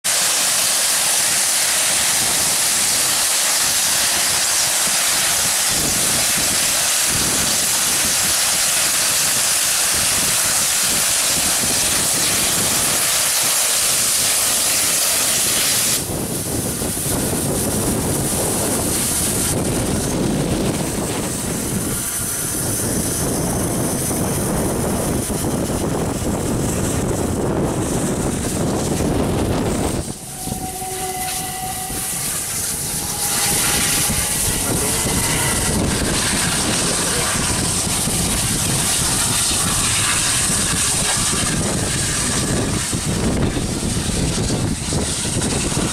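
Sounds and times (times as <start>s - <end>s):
steam locomotive hissing steam: 0.0s - 45.9s
train coaches rumbling past: 9.9s - 45.9s.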